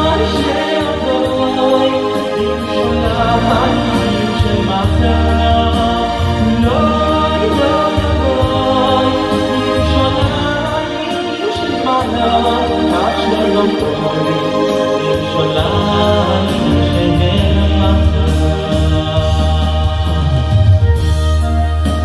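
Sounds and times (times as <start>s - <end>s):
man singing into a microphone: 0.0s - 20.8s
electronic keyboard: 0.0s - 22.0s.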